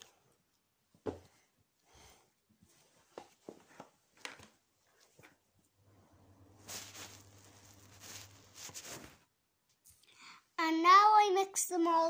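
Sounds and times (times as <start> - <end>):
low steady hum: 5.7 - 8.8.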